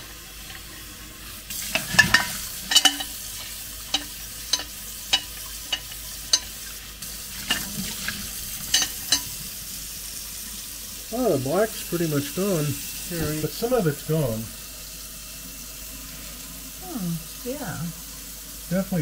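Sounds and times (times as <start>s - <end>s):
scrubbing clicks against metal: 1.7s - 6.6s, 7.4s - 9.4s.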